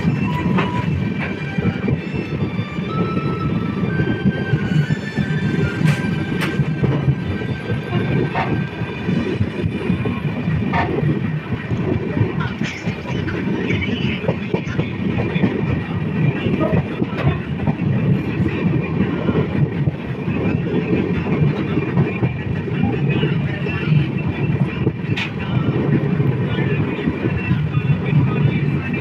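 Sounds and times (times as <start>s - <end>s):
train rumbling on rails: 0.0s - 29.0s
train wheel clacks: 3.9s - 23.9s.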